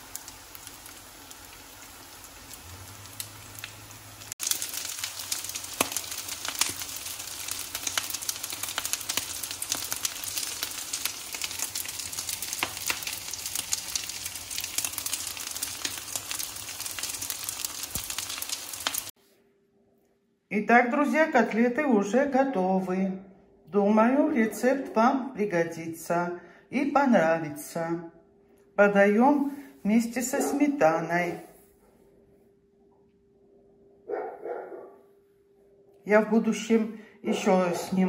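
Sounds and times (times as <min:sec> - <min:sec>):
cutlets sizzling in oil: 0:00.0 - 0:19.2.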